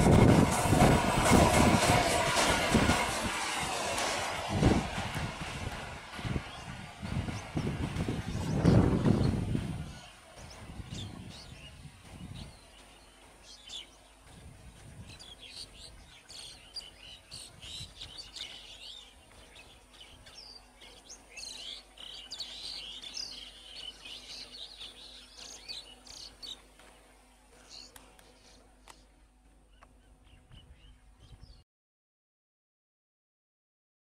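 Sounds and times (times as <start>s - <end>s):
train rumble: 0.0s - 31.6s
birds chirping: 6.2s - 31.6s.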